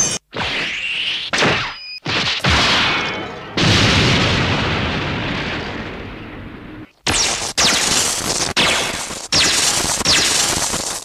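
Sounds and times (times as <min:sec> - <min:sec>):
explosion-like boom: 0:02.6 - 0:06.9.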